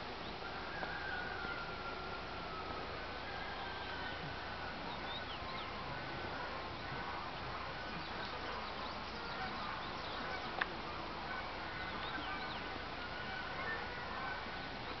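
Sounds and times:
steady outdoor hiss: 0.0 - 15.0
small birds chirping: 3.7 - 15.0.

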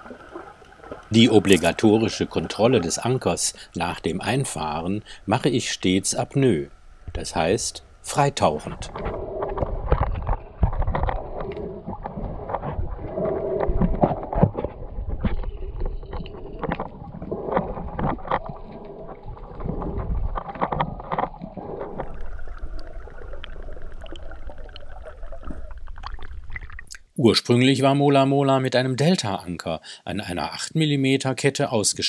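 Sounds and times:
muffled underwater water rush: 0.0 - 26.9
underwater clicks and knocks: 8.6 - 27.0.

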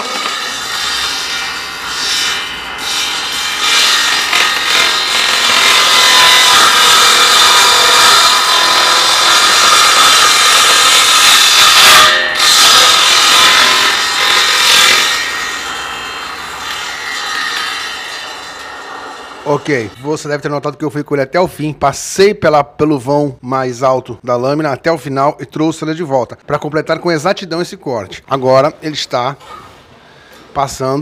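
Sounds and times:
circular saw cutting wood: 0.0 - 20.0.

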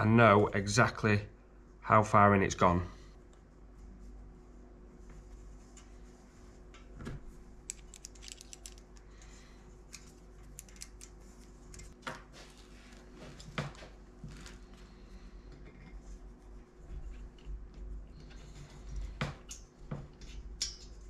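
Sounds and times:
metal fittings clicking and jingling: 7.7 - 9.0, 10.0 - 11.1.

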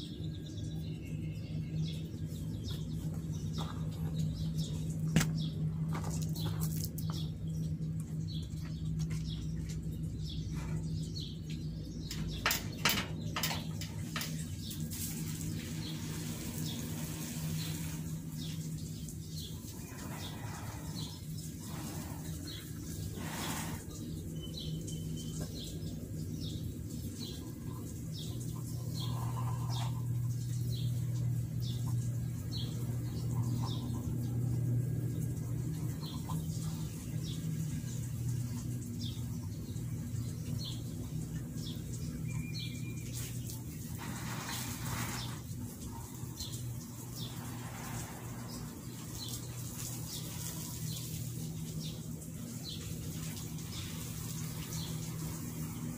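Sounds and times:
low machine hum: 0.0 - 55.9
small birds chirping: 0.0 - 55.9.

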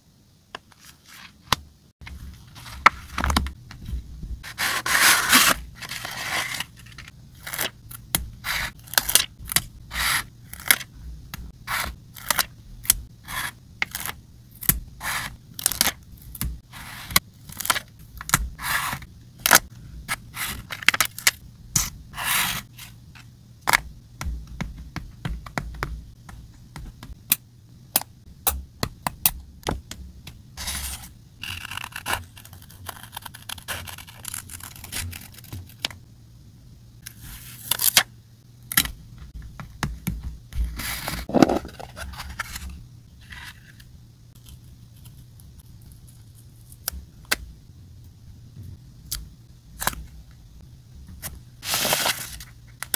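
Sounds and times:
scissor blades scraping paper: 4.4 - 7.7.

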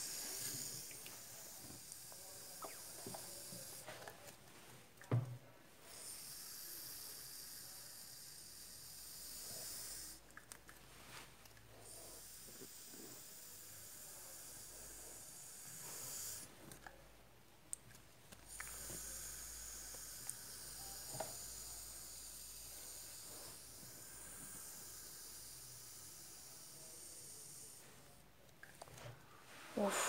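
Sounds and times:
aerosol can hissing: 15.3 - 16.5.

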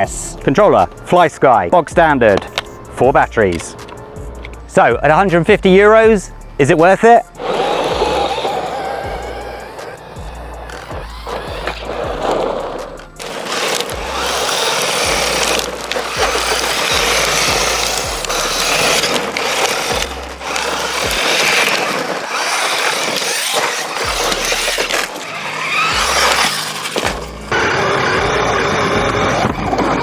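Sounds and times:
background music: 0.0 - 28.0
tyres on loose gravel: 7.0 - 30.0
rc car electric motor: 7.4 - 30.0.

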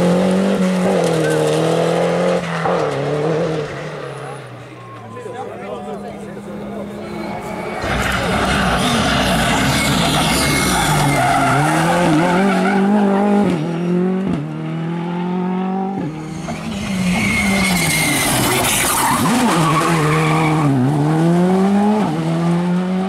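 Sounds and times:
rally car engines at full throttle: 0.0 - 23.0
tyres squealing: 4.2 - 13.1.

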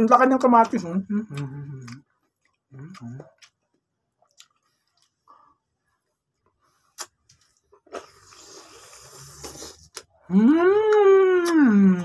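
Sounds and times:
wet mouth clicks eating: 1.3 - 3.6
air hissing through lips: 8.3 - 9.9.

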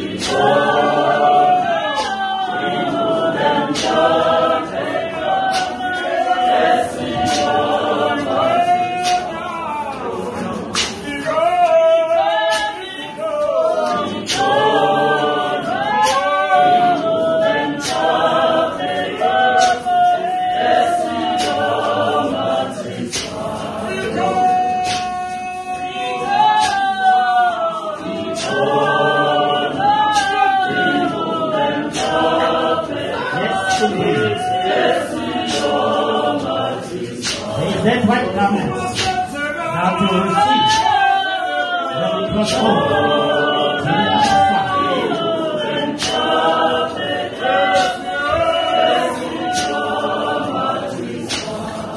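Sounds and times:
choir singing a cappella: 0.0 - 51.9
sharp beats: 0.0 - 51.9.

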